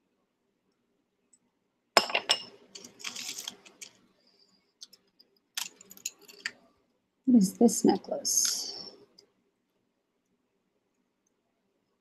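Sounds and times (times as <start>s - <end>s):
jewelry clinking and rattling: 2.0s - 4.0s, 5.6s - 6.6s.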